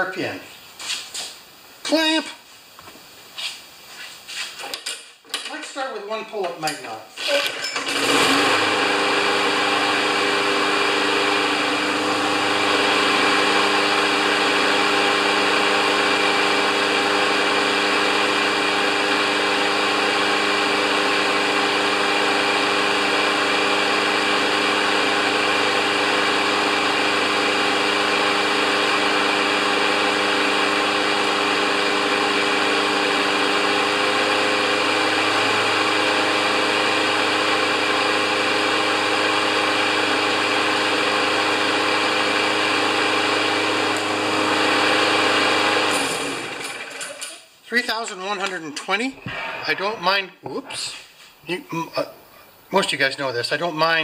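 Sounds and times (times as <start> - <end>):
lawn mower engine running steadily: 7.4 - 47.3.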